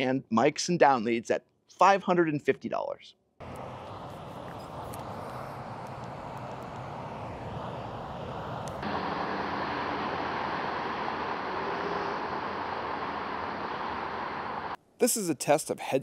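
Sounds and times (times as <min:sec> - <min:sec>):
steady ambient noise: 0:03.4 - 0:14.8.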